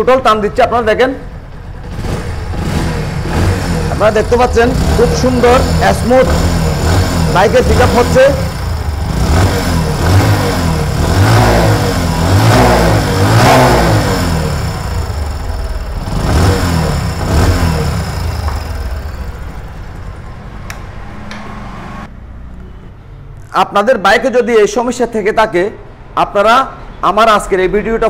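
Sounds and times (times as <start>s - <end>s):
motorcycle engine revving: 1.4s - 22.1s.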